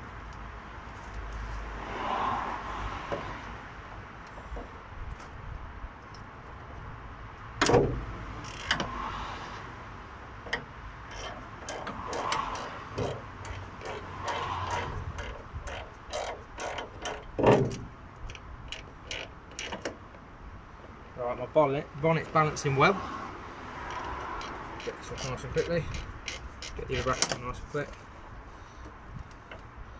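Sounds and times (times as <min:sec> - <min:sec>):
metal clunks: 0:07.6 - 0:08.1, 0:14.3 - 0:18.0
spanner clicking on a bolt: 0:08.4 - 0:08.9, 0:10.5 - 0:20.0, 0:23.8 - 0:27.5.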